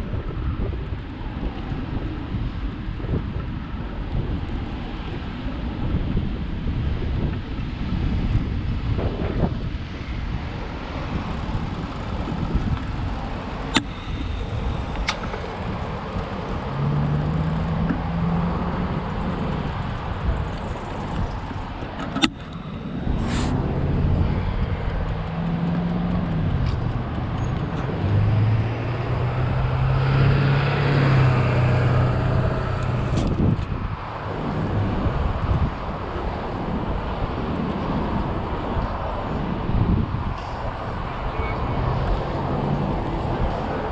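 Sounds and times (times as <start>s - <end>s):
road traffic passing: 0.0s - 43.9s
sharp clicks: 13.7s - 15.5s.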